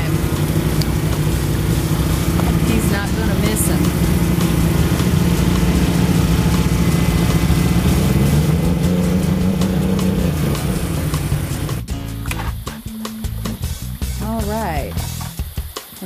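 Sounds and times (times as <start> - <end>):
boat engine drone: 0.0 - 12.8.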